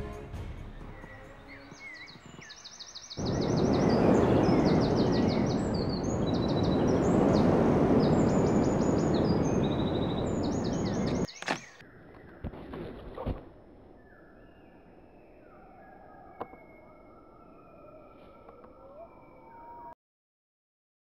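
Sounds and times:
birds chirping: 0.6 - 12.6.

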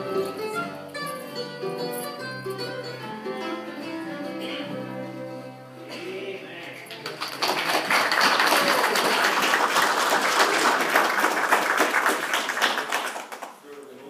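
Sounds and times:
congregation clapping: 6.9 - 13.6.

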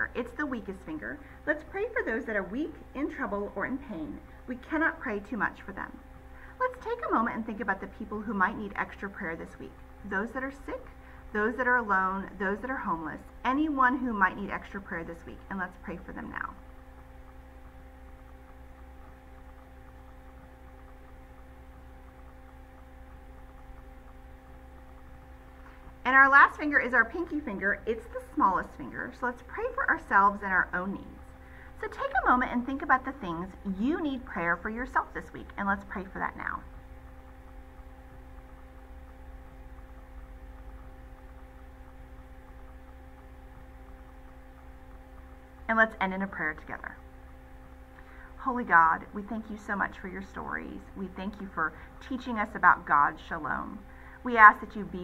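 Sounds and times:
quiet electrical hum: 0.0 - 55.0.

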